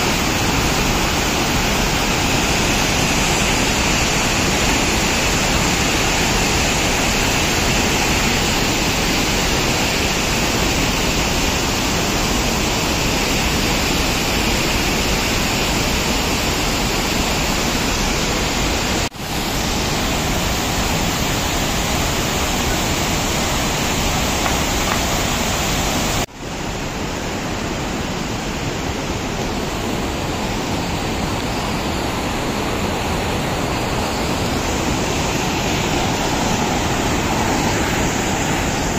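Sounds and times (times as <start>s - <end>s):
rushing river rapids: 0.0s - 38.9s.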